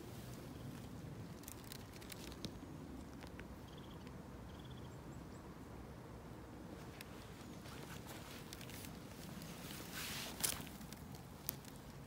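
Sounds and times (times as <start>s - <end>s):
twigs and leaves crackling: 0.0s - 3.5s, 6.8s - 12.0s.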